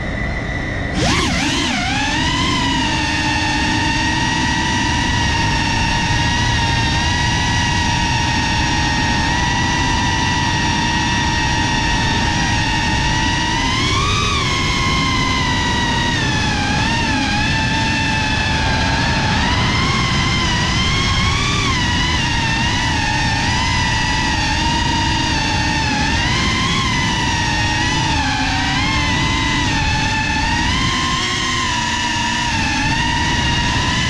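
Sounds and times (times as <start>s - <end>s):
drone motors whining: 0.0s - 34.0s.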